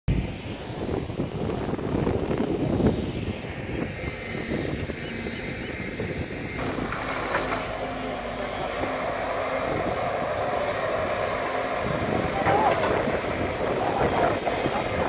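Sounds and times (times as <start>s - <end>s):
wind noise on microphone: 0.1s - 15.0s
excavator diesel engine running: 4.9s - 15.0s.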